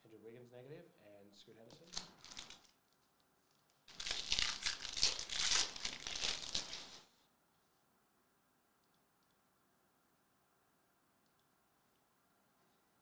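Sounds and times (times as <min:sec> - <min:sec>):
plastic wrapper tearing and crinkling: 0:01.8 - 0:07.0.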